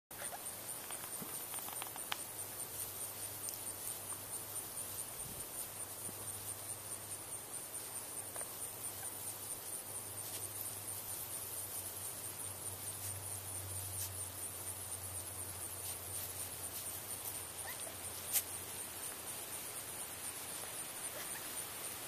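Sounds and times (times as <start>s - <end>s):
insects chirping: 0.1s - 22.0s
faint clicks: 0.8s - 2.3s.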